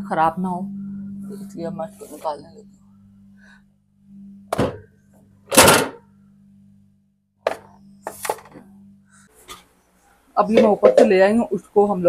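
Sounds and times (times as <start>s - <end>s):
refrigerator hum: 0.0s - 12.0s.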